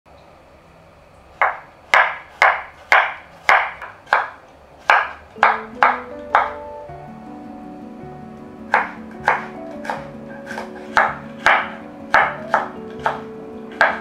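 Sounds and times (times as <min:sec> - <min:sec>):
knife chopping on wooden board: 0:01.4 - 0:06.6, 0:08.7 - 0:14.0.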